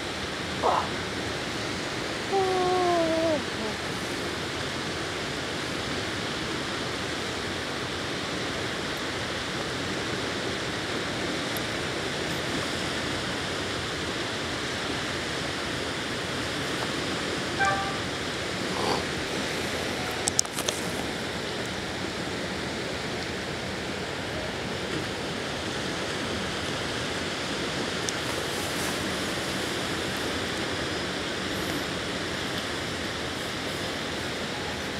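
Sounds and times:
river water rushing: 0.0s - 34.9s
wind: 0.0s - 34.9s
brief pitched call: 17.6s - 18.2s.

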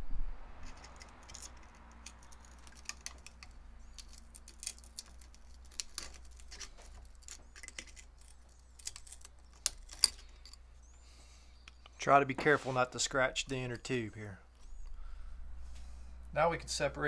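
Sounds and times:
metallic clicks and scrapes: 0.6s - 10.7s.

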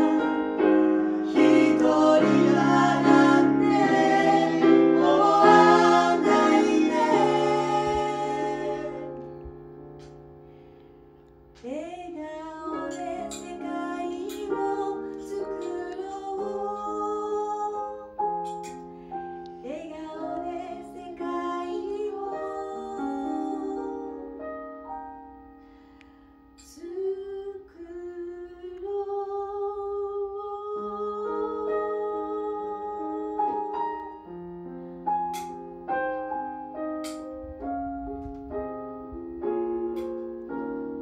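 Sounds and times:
electronic keyboard: 0.0s - 27.2s, 31.0s - 41.0s
woman singing: 11.6s - 18.1s, 19.6s - 24.2s, 26.6s - 33.9s, 39.0s - 40.0s.

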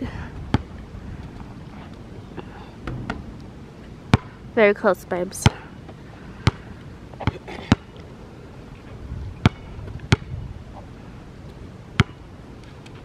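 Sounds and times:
basketball bouncing on hard court: 0.5s - 0.7s, 4.1s - 4.3s, 9.4s - 10.3s, 12.0s - 12.2s.

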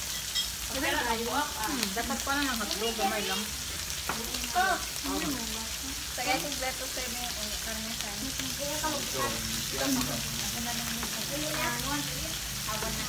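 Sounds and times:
meat sizzling on a grill: 0.0s - 13.0s
voices chatting: 0.7s - 13.0s.

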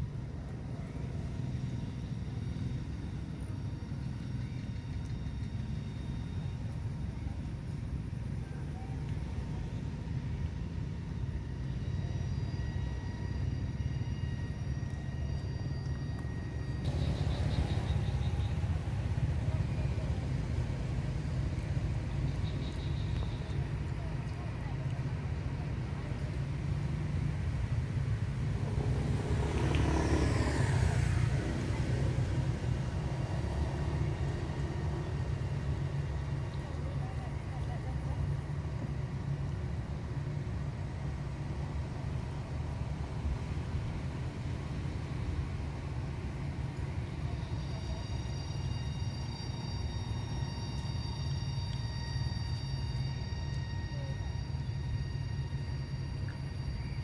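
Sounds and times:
low outdoor rumble: 0.0s - 57.0s
faint high-pitched tones: 0.2s - 27.0s, 46.8s - 57.0s.

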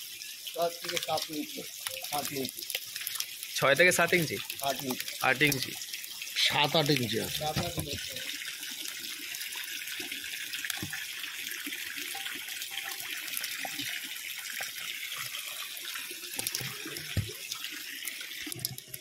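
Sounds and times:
running water hiss: 0.0s - 19.0s.

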